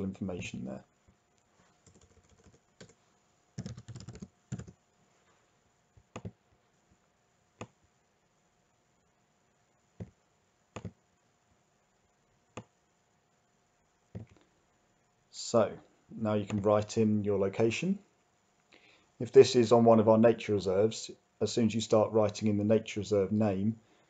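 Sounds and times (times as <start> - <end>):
computer keyboard typing: 1.8 - 3.0, 3.6 - 4.8, 6.1 - 6.4, 10.8 - 11.0.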